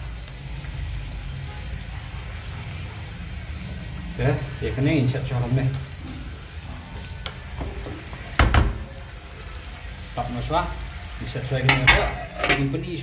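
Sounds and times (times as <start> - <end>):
spatula knocking pan: 7.6 - 8.8, 11.7 - 12.7
metal lid clattering: 11.7 - 12.7.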